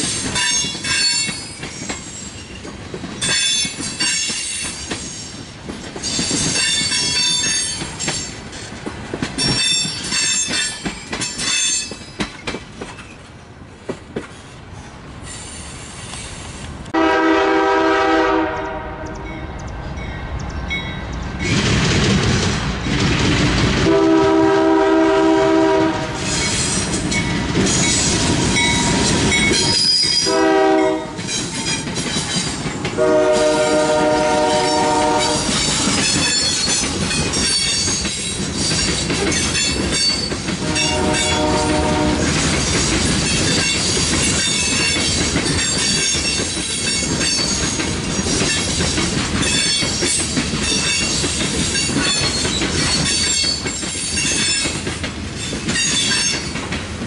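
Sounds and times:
train rumble and rail noise: 0:00.0 - 0:57.0
locomotive air horn blasts: 0:17.0 - 0:19.4, 0:23.8 - 0:26.3, 0:30.2 - 0:31.2, 0:33.0 - 0:35.5, 0:40.6 - 0:42.3.

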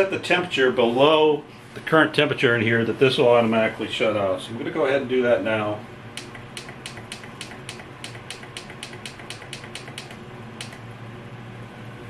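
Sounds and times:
heater fan humming: 0:00.0 - 0:12.0
thermostat buttons clicking: 0:06.2 - 0:10.8.

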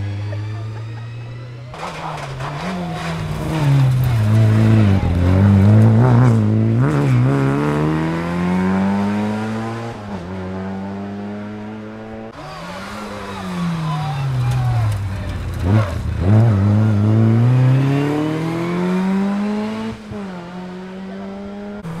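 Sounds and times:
rally car engine revving: 0:00.0 - 0:22.0.

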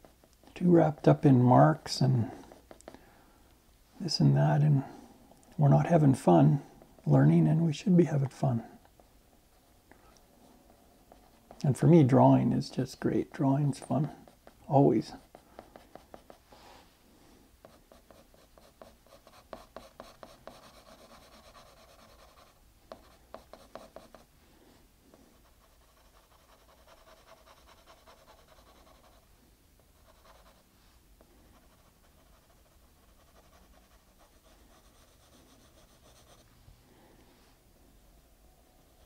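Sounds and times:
pencil scratching on paper: 0:11.0 - 0:11.6, 0:14.0 - 0:16.5, 0:17.6 - 0:24.3, 0:25.4 - 0:29.3, 0:29.9 - 0:30.7, 0:31.5 - 0:36.5.

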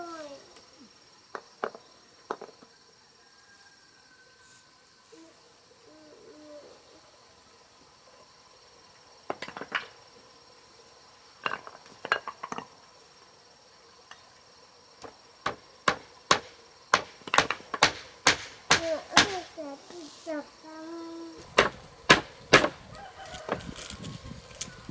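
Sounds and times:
hammer knocking on wooden poles: 0:15.0 - 0:19.4, 0:21.5 - 0:22.8.

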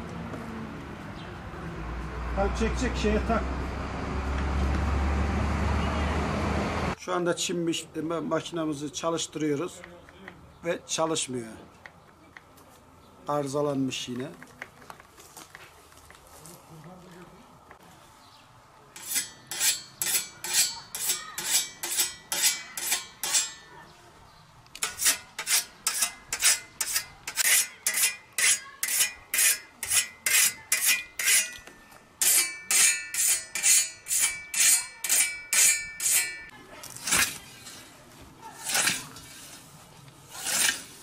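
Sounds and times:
sharpening stone whetting scythe blade: 0:19.0 - 0:23.7, 0:24.8 - 0:38.0, 0:38.6 - 0:39.7, 0:40.3 - 0:41.0.

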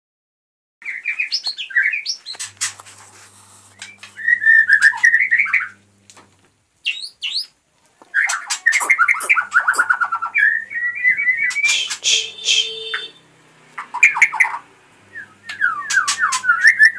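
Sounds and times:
bird singing whistled phrases: 0:03.8 - 0:05.8, 0:06.8 - 0:07.5, 0:08.2 - 0:13.2, 0:13.9 - 0:16.9.

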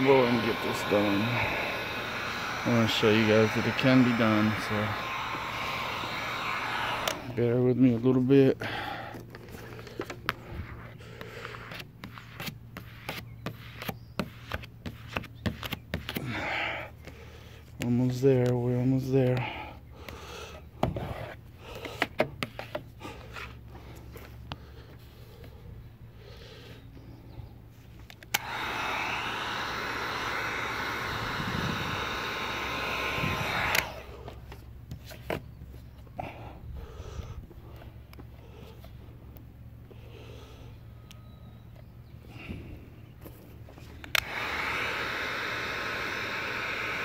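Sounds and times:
heat gun blowing: 0:00.0 - 0:35.6, 0:36.2 - 0:47.0
steady low hum: 0:00.0 - 0:47.0
plastic card clicking and rubbing: 0:09.3 - 0:16.2
heat gun switch click: 0:28.1 - 0:29.2, 0:32.2 - 0:34.0, 0:44.0 - 0:44.5.

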